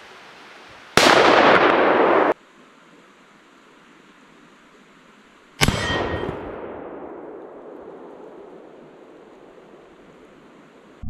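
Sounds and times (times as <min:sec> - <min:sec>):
rifle shot with echo: 0:01.0 - 0:02.4, 0:05.6 - 0:09.3.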